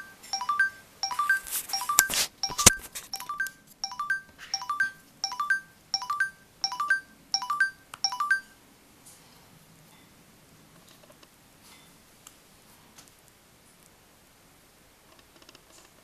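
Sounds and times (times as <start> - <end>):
rising electronic chime: 3.2 - 8.6.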